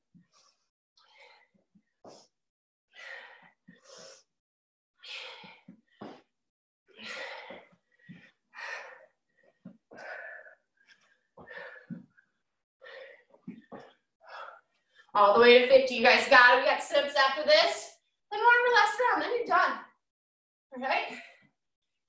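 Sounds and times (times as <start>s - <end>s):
woman breathing hard: 2.9s - 4.3s, 5.0s - 6.2s, 6.9s - 15.0s.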